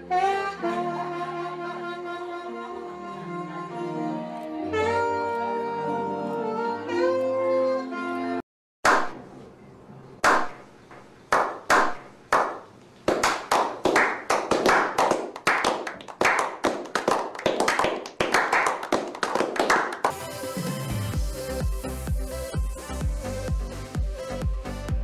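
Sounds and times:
group of men clapping: 0:11.3 - 0:20.2.

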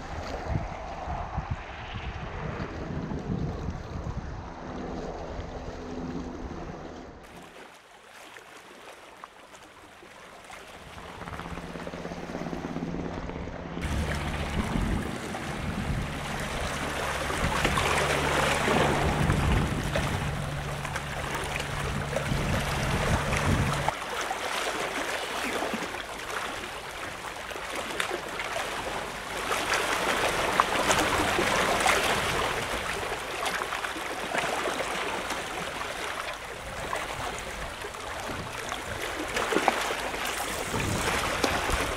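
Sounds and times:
wind: 0:00.0 - 0:41.9
water lapping against a seawall: 0:02.7 - 0:12.1, 0:13.8 - 0:41.9
low steady hum: 0:11.6 - 0:23.9.

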